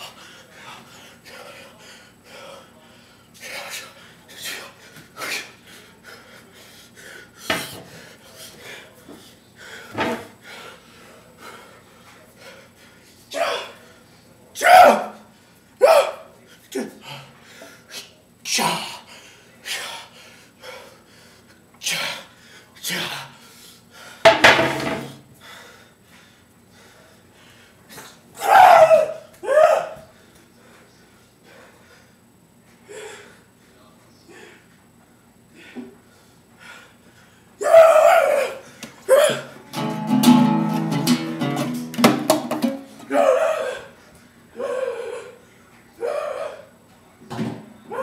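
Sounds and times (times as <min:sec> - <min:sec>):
person shouting karate yells: 0:14.6 - 0:15.2, 0:15.8 - 0:16.2, 0:28.4 - 0:30.0.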